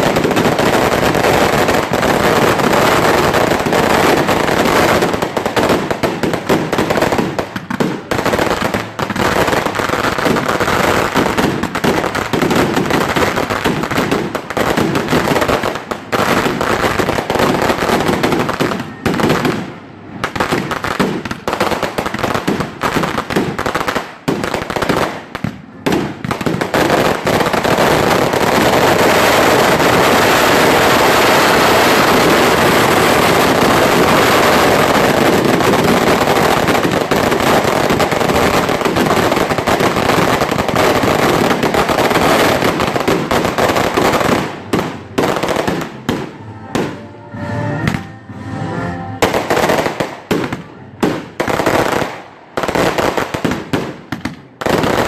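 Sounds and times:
fireworks bangs and crackles: 0:00.0 - 0:47.0, 0:49.2 - 0:55.0.

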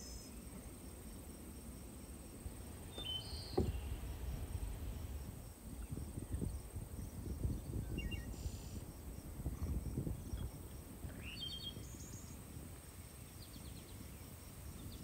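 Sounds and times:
low uneven rumble: 0:00.3 - 0:15.0.

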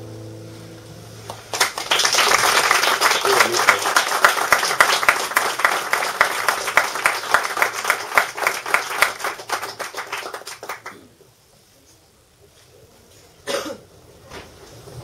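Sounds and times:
audience applauding: 0:01.2 - 0:11.1.

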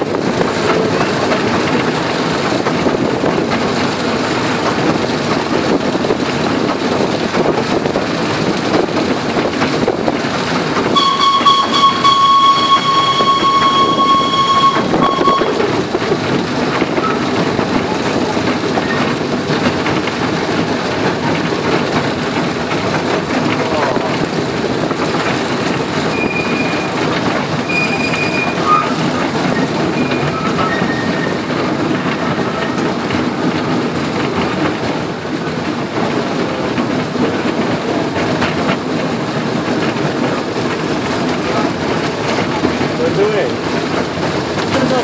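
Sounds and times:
train wheels rumbling and clattering: 0:00.0 - 0:45.0
locomotive warning hoot: 0:10.8 - 0:15.9, 0:26.1 - 0:31.5.

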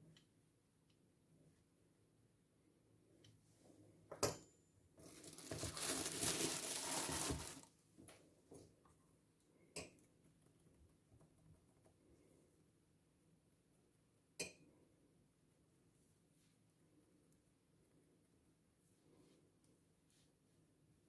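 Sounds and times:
cling film rustling: 0:05.0 - 0:07.7.

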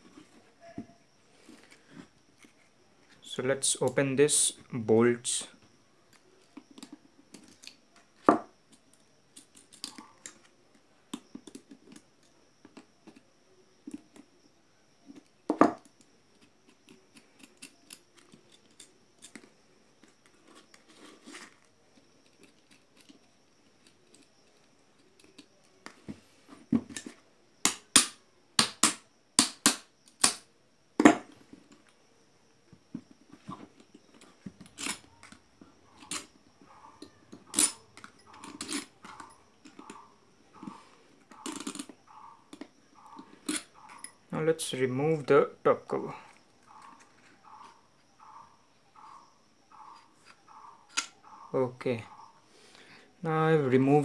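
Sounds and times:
pliers and metal nuts clicking: 0:08.7 - 0:10.5, 0:15.9 - 0:19.5, 0:34.1 - 0:41.9, 0:42.5 - 0:44.3, 0:49.9 - 0:51.2.

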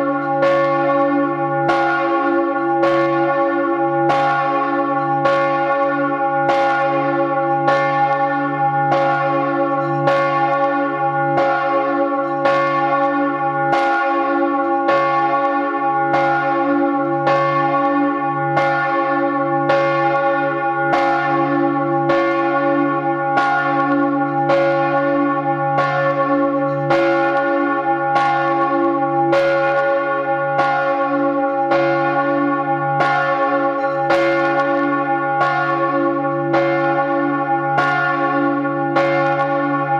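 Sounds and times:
large church bell ringing: 0:00.0 - 0:39.9.

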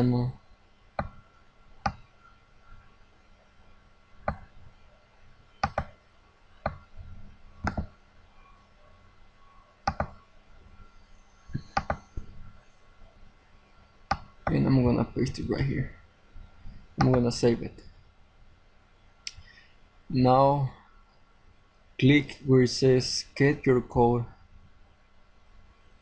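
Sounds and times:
computer mouse clicks: 0:01.0 - 0:01.2, 0:01.8 - 0:02.0, 0:05.6 - 0:06.0, 0:07.6 - 0:08.0, 0:09.8 - 0:10.2, 0:11.5 - 0:12.2, 0:14.1 - 0:14.6, 0:17.0 - 0:17.2.

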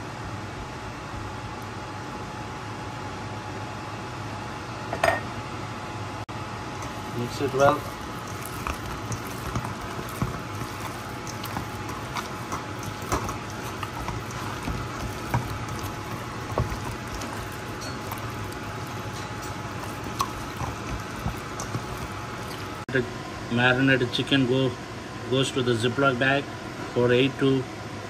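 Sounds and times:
wet squelching of raw meat: 0:06.7 - 0:22.8.

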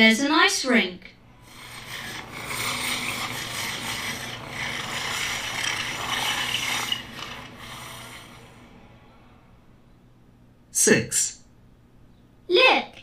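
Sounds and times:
ice skates scraping on ice: 0:01.5 - 0:08.5.

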